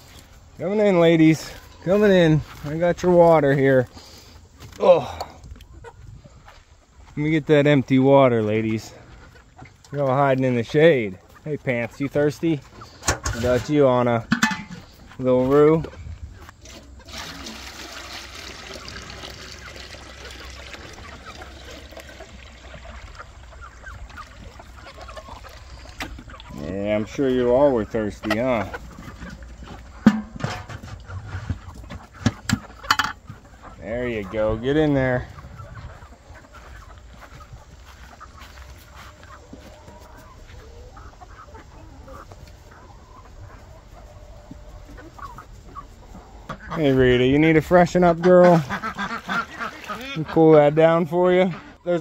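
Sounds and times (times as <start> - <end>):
chickens clucking: 0.0 - 52.0
water pouring into container: 17.1 - 23.5.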